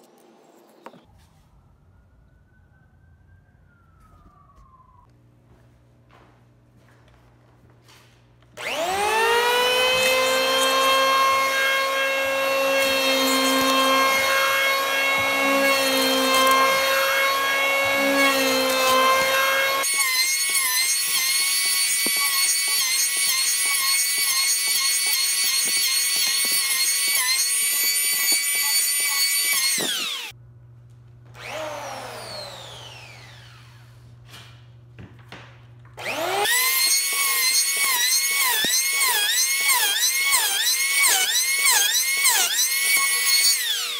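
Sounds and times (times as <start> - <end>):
electric planer whining: 8.6 - 30.3, 31.4 - 34.0, 36.0 - 43.9
planer blades shaving wood: 8.6 - 30.3, 31.4 - 34.0, 36.0 - 43.9.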